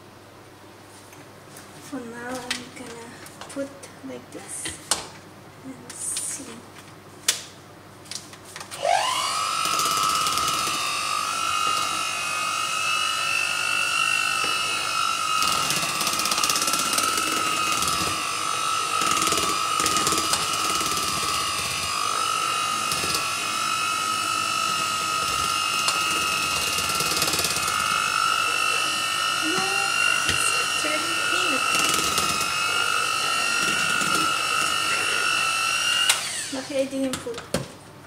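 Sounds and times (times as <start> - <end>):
electric mixer motor whine: 8.7 - 37.0
mixer beaters clattering: 9.7 - 37.4.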